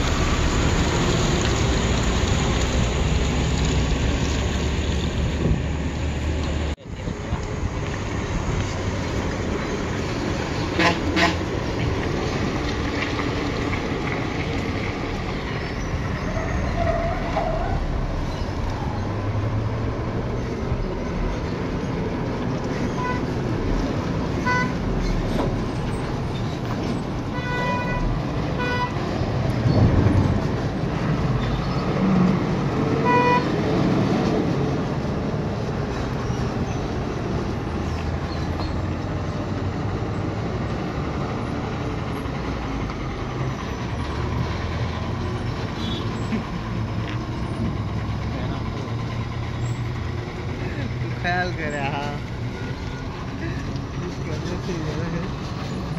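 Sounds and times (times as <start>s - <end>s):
diesel lorries passing: 0.0s - 55.9s
horn toots: 10.8s - 11.4s.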